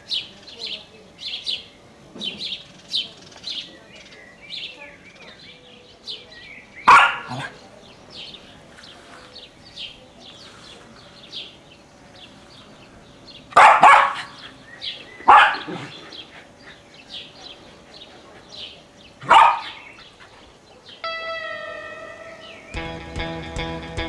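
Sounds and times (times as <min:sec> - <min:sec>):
birds chirping faintly: 0:00.0 - 0:23.4
dog barking: 0:06.9 - 0:07.6, 0:13.6 - 0:14.4, 0:15.2 - 0:16.0, 0:19.2 - 0:19.9.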